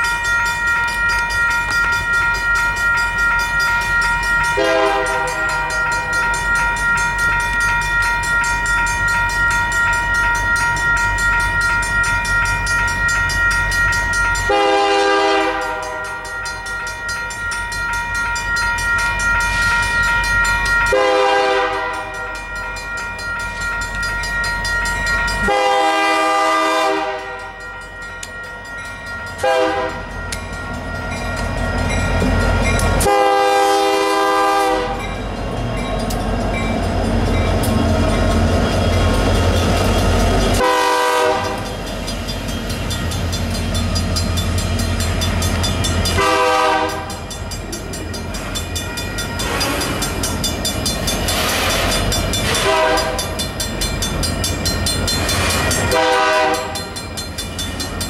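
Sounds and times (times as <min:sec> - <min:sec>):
high ringing tone: 0:00.0 - 0:26.4, 0:27.2 - 0:58.0
diesel locomotive engine rumbling: 0:00.0 - 0:58.0
locomotive air horn blasts: 0:04.6 - 0:05.4, 0:14.5 - 0:16.0, 0:20.9 - 0:22.2, 0:25.4 - 0:27.6, 0:29.4 - 0:30.0, 0:33.0 - 0:35.0, 0:40.6 - 0:41.6, 0:46.2 - 0:47.2, 0:52.5 - 0:53.3, 0:55.9 - 0:56.8.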